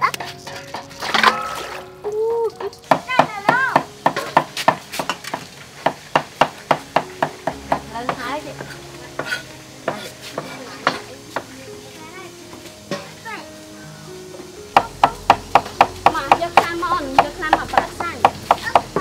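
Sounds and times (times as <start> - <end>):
cleaver chopping on wooden board: 2.9 - 7.8.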